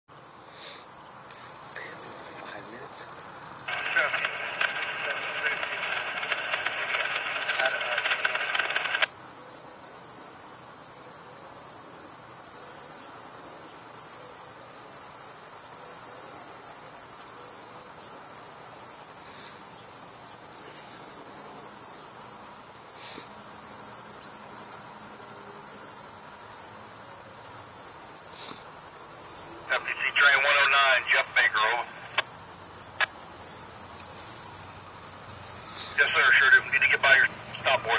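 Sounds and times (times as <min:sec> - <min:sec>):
insect chorus trilling: 0:00.1 - 0:37.9
scratchy burst: 0:03.7 - 0:09.1, 0:29.7 - 0:32.3, 0:35.6 - 0:37.9.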